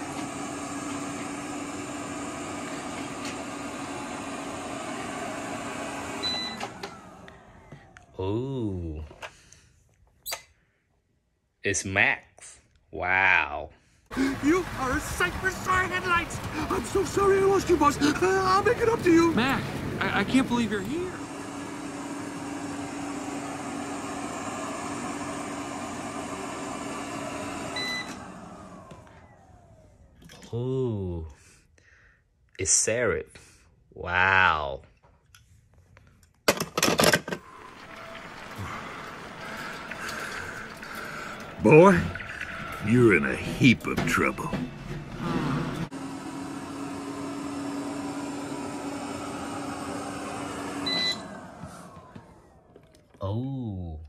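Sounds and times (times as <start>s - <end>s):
robot vacuum whirring: 0.0s - 8.1s, 14.2s - 30.0s, 37.4s - 53.2s
motor winding down: 0.0s - 8.9s, 14.1s - 30.9s, 37.3s - 54.0s.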